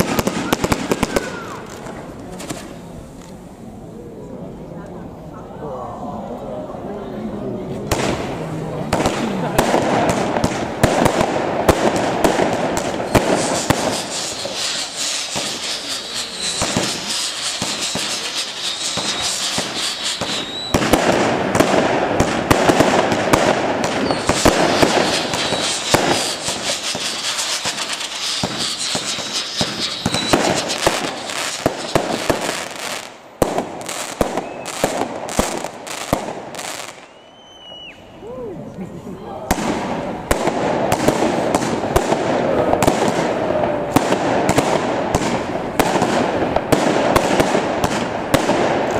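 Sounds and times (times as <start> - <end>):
firework whistles: 0.0 - 1.8, 10.2 - 38.3
fireworks bangs and crackling: 0.0 - 4.5, 7.2 - 38.0, 39.4 - 48.9.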